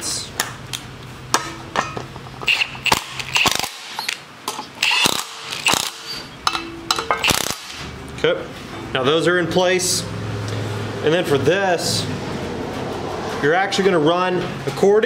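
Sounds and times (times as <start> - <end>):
hand ratchet clicking: 2.4 - 4.2, 4.8 - 7.8.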